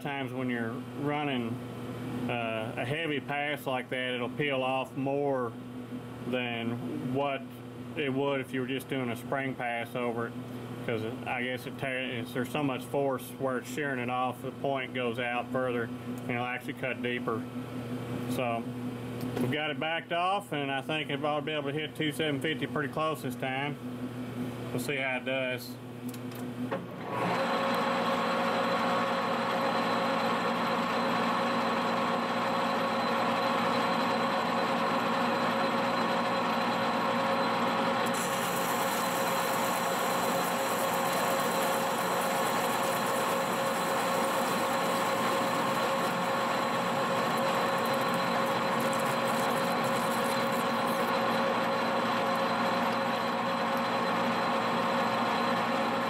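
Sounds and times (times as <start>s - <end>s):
lathe drone with whining tones: 27.2s - 56.0s.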